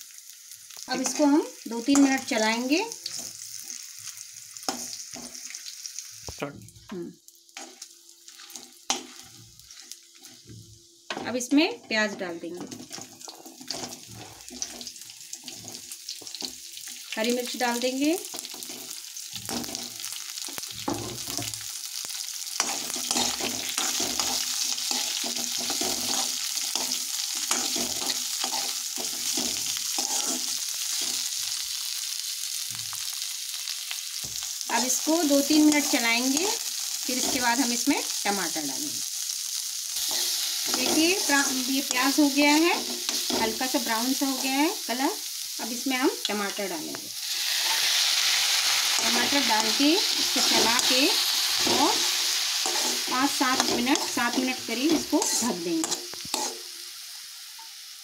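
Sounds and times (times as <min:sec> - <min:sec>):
spices sizzling in hot oil: 0:00.0 - 0:58.0
ladle clinking and scraping pan: 0:55.2 - 0:56.6.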